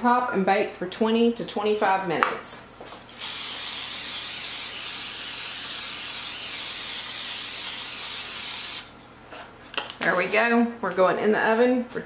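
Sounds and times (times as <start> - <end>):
aerosol spray hissing: 3.2 - 8.9.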